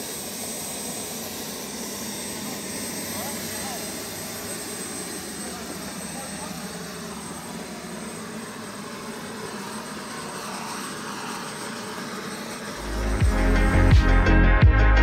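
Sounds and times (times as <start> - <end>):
jet turbine hissing and whining: 0.0 - 14.4
electronic music with heavy bass: 12.8 - 15.0.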